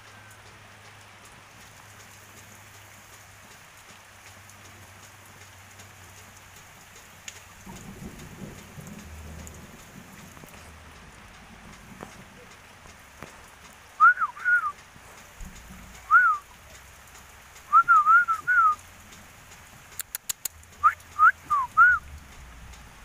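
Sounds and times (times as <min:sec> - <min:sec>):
rain: 0:00.0 - 0:23.0
bird singing whistled notes: 0:14.0 - 0:14.8, 0:16.0 - 0:16.5, 0:17.7 - 0:18.8, 0:20.8 - 0:22.1.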